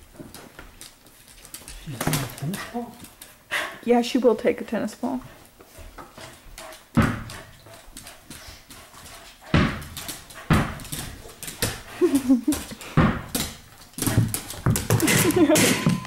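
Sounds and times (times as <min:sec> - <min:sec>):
thuds on hardwood floor: 0:06.9 - 0:07.5, 0:09.5 - 0:11.8, 0:12.5 - 0:16.0.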